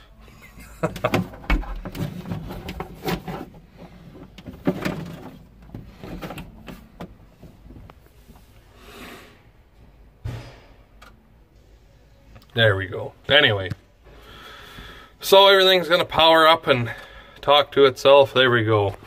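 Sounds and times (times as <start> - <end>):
knocks and clunks of shop work: 0.7 - 8.4, 9.7 - 11.3.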